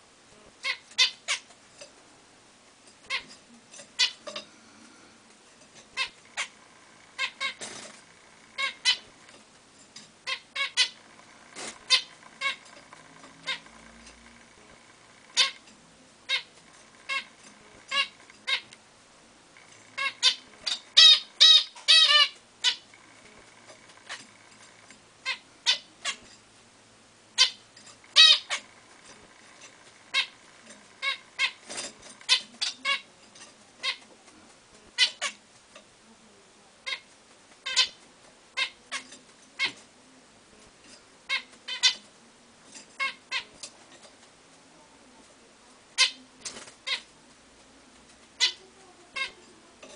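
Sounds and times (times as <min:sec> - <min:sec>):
finches squeaky calls: 0:00.6 - 0:01.5, 0:04.0 - 0:04.4, 0:05.9 - 0:06.6, 0:07.2 - 0:07.8, 0:08.6 - 0:09.2, 0:10.2 - 0:14.0, 0:15.3 - 0:15.6, 0:16.3 - 0:18.7, 0:19.9 - 0:22.9, 0:25.2 - 0:26.2, 0:27.4 - 0:28.7, 0:31.0 - 0:33.1, 0:36.9 - 0:38.0, 0:41.3 - 0:42.0, 0:43.0 - 0:43.6.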